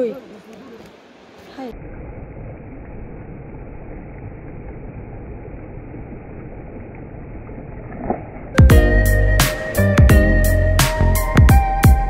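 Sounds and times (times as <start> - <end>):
river water rushing: 0.0 - 5.6.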